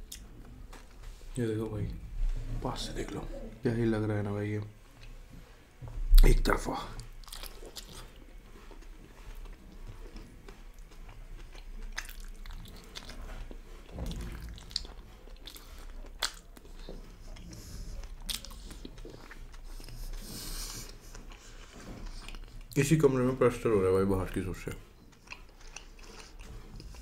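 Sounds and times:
chewing and biting food: 7.0s - 27.0s.

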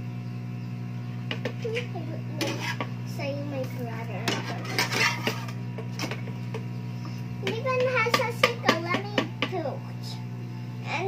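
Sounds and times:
steady low hum: 0.0s - 11.0s
spoon stirring batter in bowl: 1.3s - 3.0s, 4.2s - 6.6s
spatula scraping frying pan: 1.3s - 6.3s.

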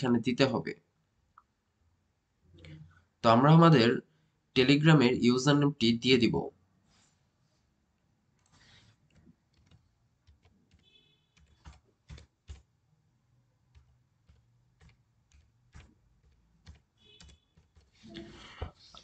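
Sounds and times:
keyboard typing: 8.4s - 12.8s, 13.6s - 19.0s.

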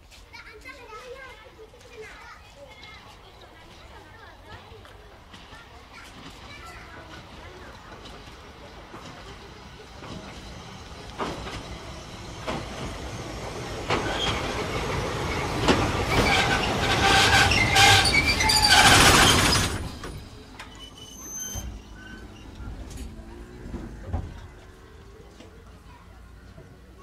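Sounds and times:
train running on rails: 0.1s - 27.0s
high squeal of train wheels: 14.0s - 23.0s.

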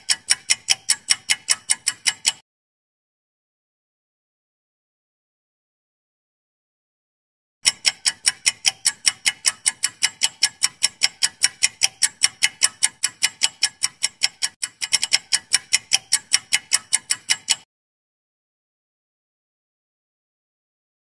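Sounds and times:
clock ticking rapidly: 0.0s - 2.4s, 7.6s - 17.7s.

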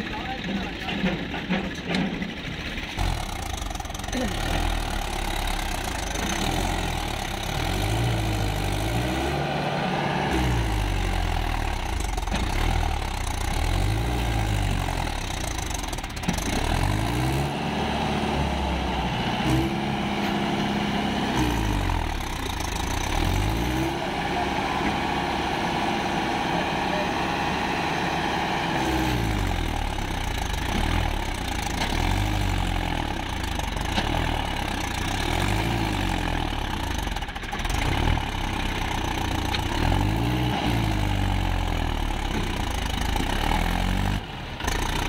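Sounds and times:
tractor diesel engine revving: 0.0s - 45.0s.

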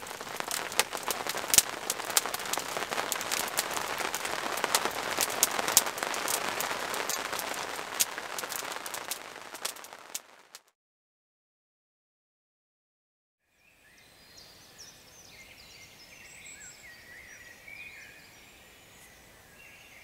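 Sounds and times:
rain drops pattering: 0.0s - 10.7s.

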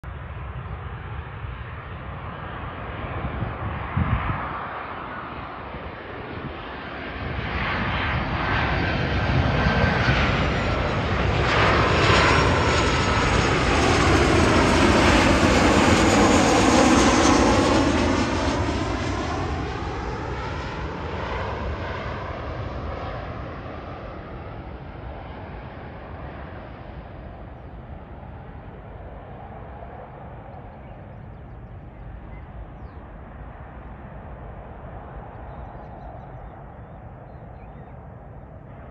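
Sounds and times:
jet airliner passing overhead: 0.1s - 38.9s.

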